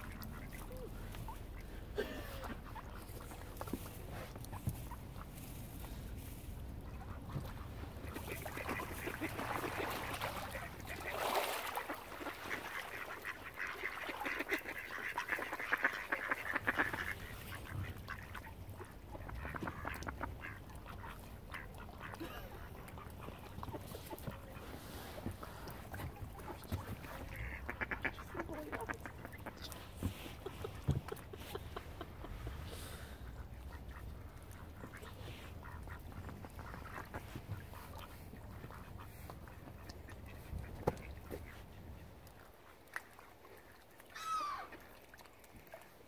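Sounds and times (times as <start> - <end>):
ducks quacking: 0.0 - 45.0.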